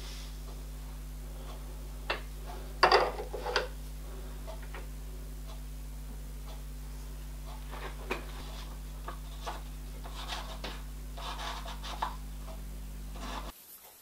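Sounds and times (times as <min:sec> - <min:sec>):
milling machine hum: 0:00.0 - 0:13.5
paper rustling against cutter: 0:07.3 - 0:13.5.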